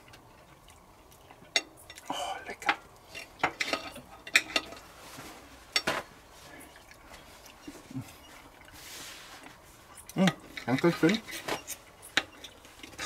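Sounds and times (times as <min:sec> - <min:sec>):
cutlery scraping a plate: 0:03.1 - 0:04.9.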